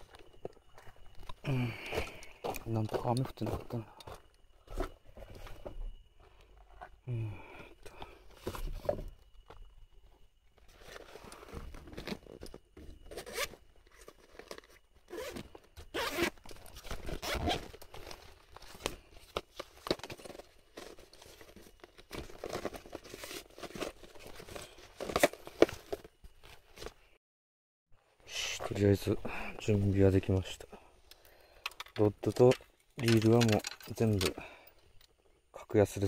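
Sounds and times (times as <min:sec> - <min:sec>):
nylon rain gear rustling: 0:09.9 - 0:27.2.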